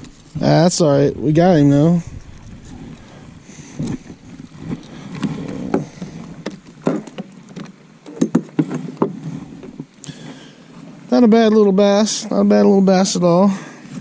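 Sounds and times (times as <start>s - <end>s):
knocks and taps on plastic kayak: 5.7s - 9.9s.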